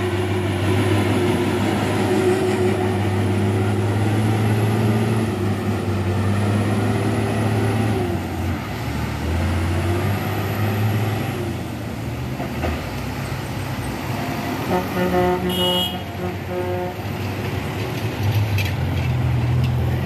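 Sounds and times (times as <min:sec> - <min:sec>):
dump truck engine drone: 0:00.0 - 0:20.0.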